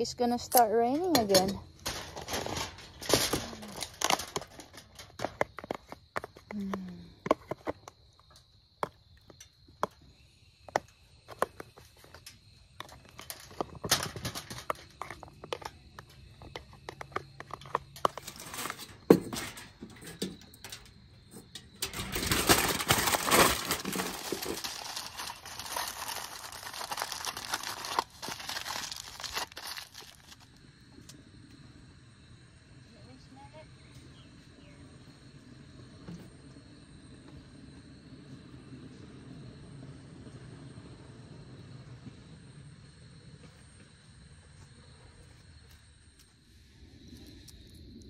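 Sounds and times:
crinkling and rustling: 0.6 - 10.0, 10.7 - 30.6.

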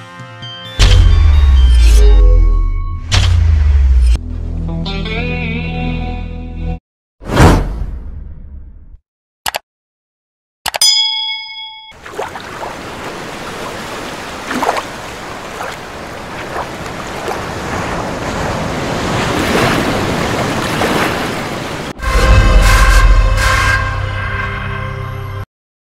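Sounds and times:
ocean waves washing: 11.9 - 23.0.

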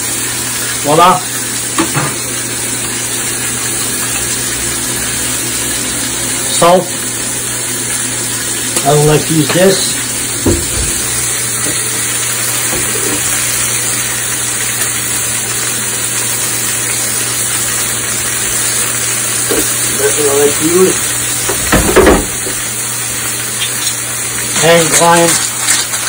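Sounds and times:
steak sizzling in a pan: 0.0 - 26.0
masher mashing potatoes in a pot: 23.6 - 26.0.

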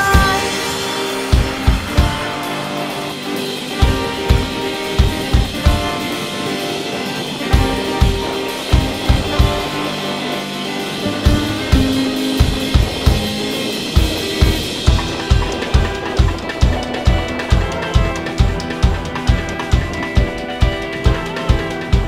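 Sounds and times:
song with drum kit: 0.0 - 22.0.

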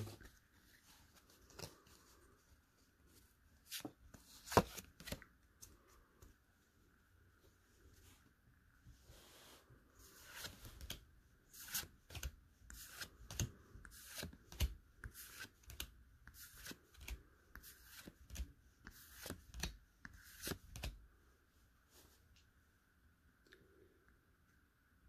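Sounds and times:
trading cards flipped by hand: 3.6 - 5.8, 10.2 - 21.0.

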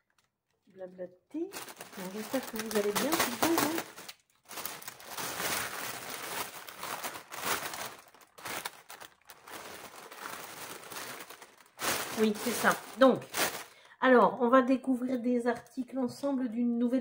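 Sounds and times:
plastic mailer bag rustling: 1.4 - 13.9.

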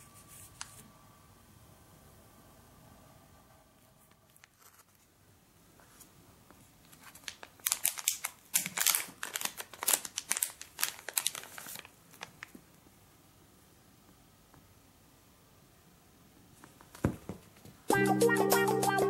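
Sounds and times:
plastic bag crinkling: 6.8 - 12.6.

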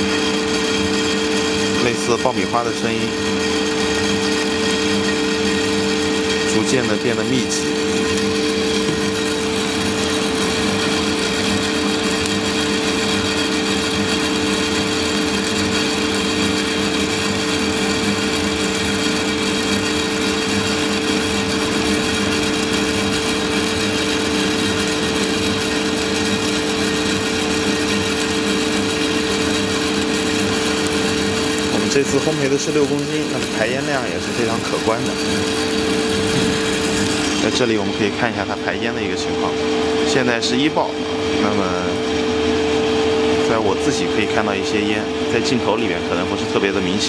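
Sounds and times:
coffee roaster drum humming: 0.0 - 47.0
coffee beans crackling: 0.8 - 39.1.

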